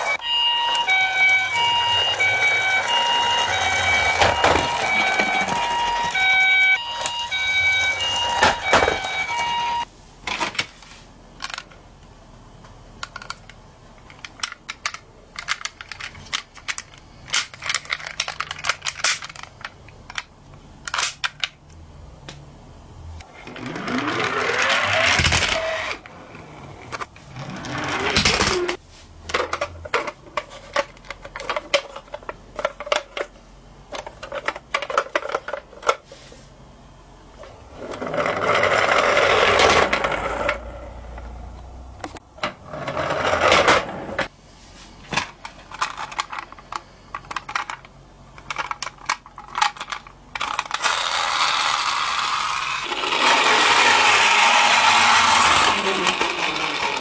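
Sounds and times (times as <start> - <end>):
toy electronic siren: 0.0 - 9.9, 23.6 - 26.0, 50.8 - 57.0
plastic toy cars clicking: 11.4 - 11.8, 13.0 - 21.6, 45.2 - 57.0.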